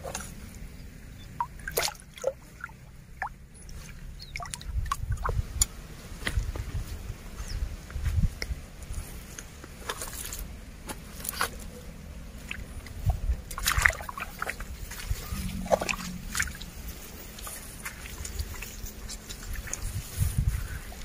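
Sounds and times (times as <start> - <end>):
water sloshing: 0.0 - 5.7, 11.0 - 21.0
grass and reeds rustling: 0.0 - 21.0
footsteps in wet mud: 1.2 - 21.0.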